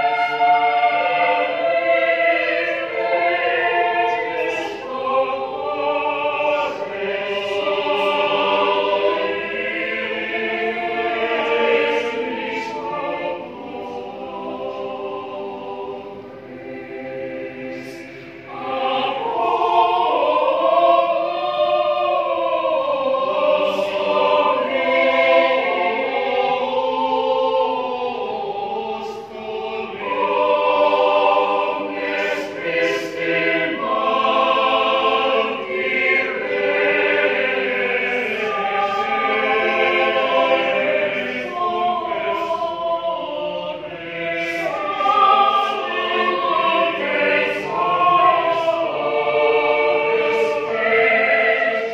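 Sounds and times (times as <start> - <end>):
mixed choir singing: 0.0 - 51.9.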